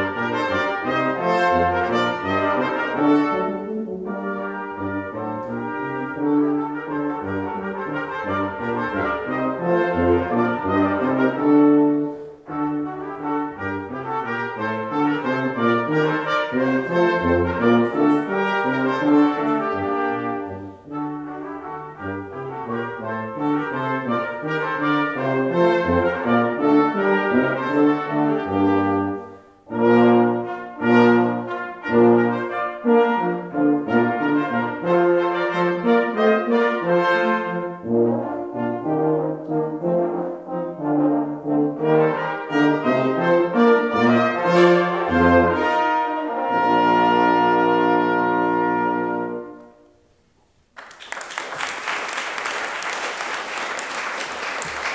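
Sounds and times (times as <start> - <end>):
brass ensemble playing: 0.0 - 50.2
audience applause: 50.8 - 54.9.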